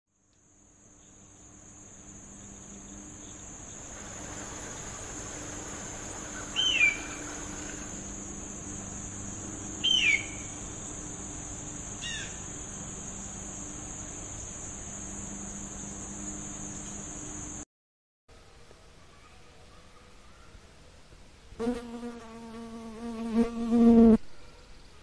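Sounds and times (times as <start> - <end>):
high-pitched insect drone: 0.6 - 17.6
bird of prey screaming: 6.5 - 7.2, 9.8 - 10.4.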